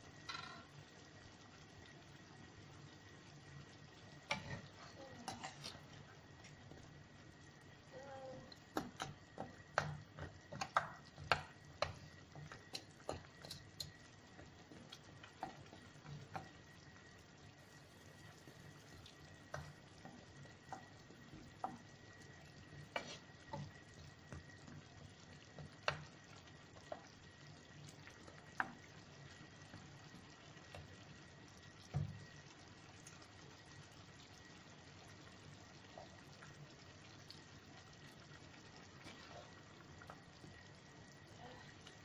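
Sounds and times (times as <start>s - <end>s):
sauce sizzling: 0.0s - 42.0s
wooden spatula scraping pan: 5.2s - 5.8s, 22.9s - 23.3s.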